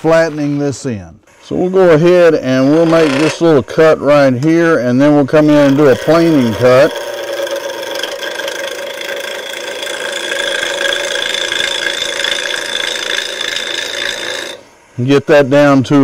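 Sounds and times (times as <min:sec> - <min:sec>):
wood lathe whirring: 0:02.1 - 0:14.8
turning tool cutting wood: 0:02.3 - 0:14.8.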